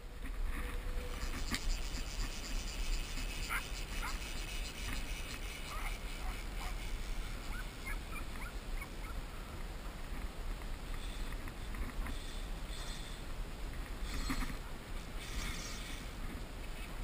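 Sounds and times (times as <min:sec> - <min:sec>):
wind rumbling on microphone: 0:00.0 - 0:17.0
short high squeaks: 0:11.0 - 0:13.2, 0:14.0 - 0:16.2.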